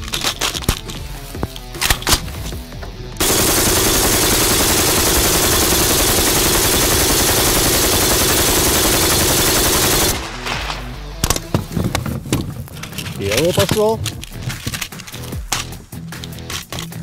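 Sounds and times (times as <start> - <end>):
machine gun automatic burst: 3.2 - 10.4.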